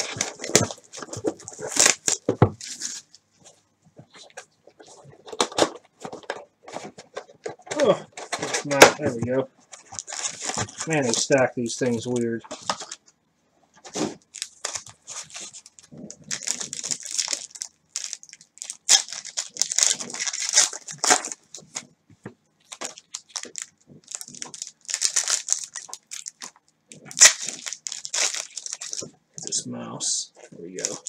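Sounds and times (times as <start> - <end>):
foil wrappers tearing and crinkling: 0.0 - 3.2, 9.8 - 13.0, 13.9 - 21.9, 22.6 - 29.6, 30.6 - 31.0.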